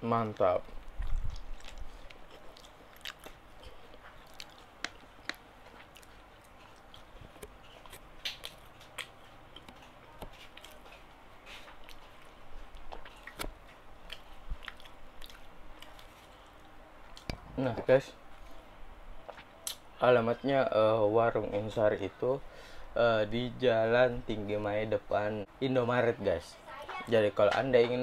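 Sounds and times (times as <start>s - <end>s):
person chewing food: 0.2s - 17.4s
wet mouth clicks and smacks: 0.7s - 9.8s, 19.6s - 19.8s.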